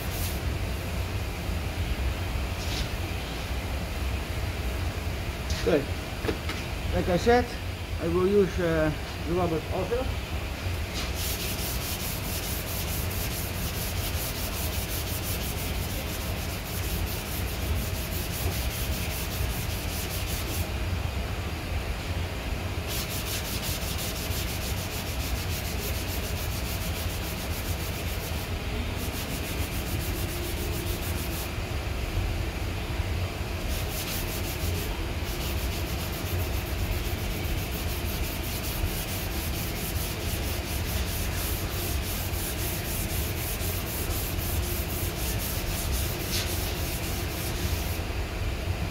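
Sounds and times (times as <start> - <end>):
hand sanding with sandpaper: 0.0 - 0.4, 10.9 - 20.7, 22.8 - 31.5, 33.6 - 48.0.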